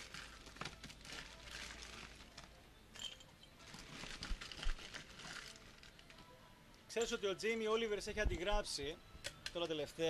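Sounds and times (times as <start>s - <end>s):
crushed ice crunching and rattling: 0.0s - 2.5s
plastic bag crinkling: 0.0s - 2.6s, 3.6s - 6.2s.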